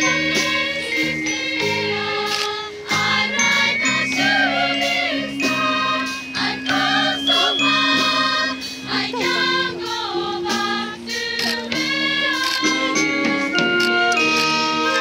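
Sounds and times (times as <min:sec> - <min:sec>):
wind band playing chords: 0:00.0 - 0:15.0.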